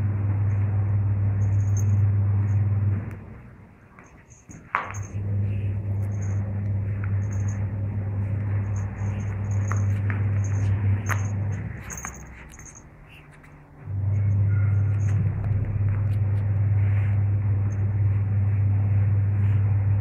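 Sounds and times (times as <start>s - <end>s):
steady low hum: 0.0s - 20.0s.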